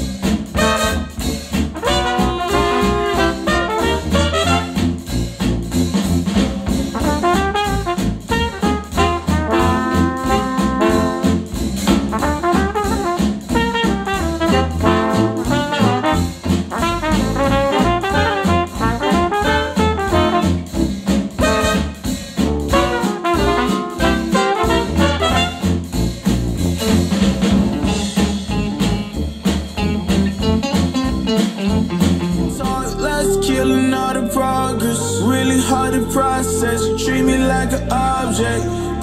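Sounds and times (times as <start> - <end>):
acoustic jazz with brass horns: 0.0 - 39.0.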